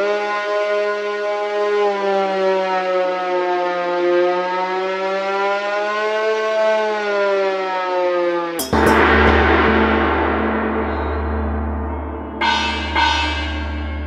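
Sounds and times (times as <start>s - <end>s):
synthesized string note: 8.6s - 14.0s.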